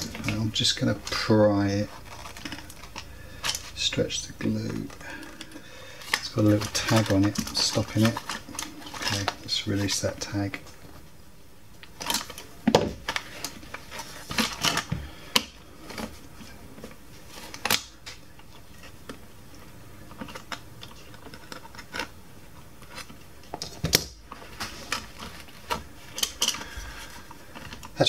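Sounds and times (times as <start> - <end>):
plastic parts being handled: 0.0 - 11.0, 11.8 - 28.0.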